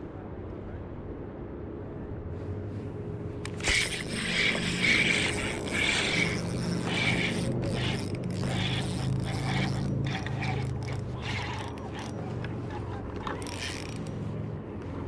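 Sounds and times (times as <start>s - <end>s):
light handling rustle: 2.4s - 15.0s
spinning reel gears winding: 3.5s - 14.2s.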